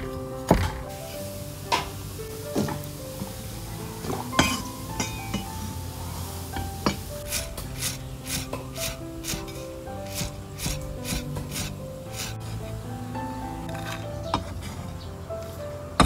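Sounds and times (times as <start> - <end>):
background music: 0.0 - 16.0.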